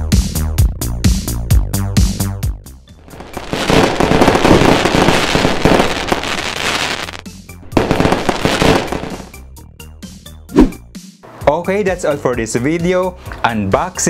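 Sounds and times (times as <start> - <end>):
background music: 0.0 - 14.0
fireworks crackling bursts: 3.1 - 9.4.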